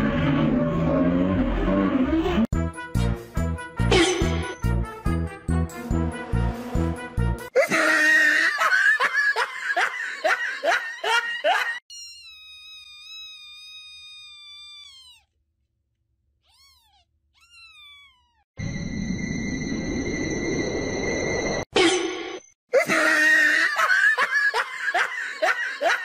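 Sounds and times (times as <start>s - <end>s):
newborn kitten mewing: 12.0s - 15.3s, 16.4s - 18.4s.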